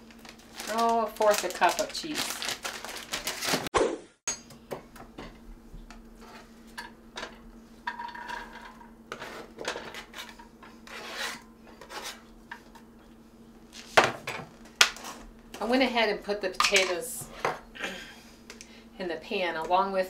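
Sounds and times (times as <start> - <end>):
knife scraping a cutting board: 9.1 - 12.3.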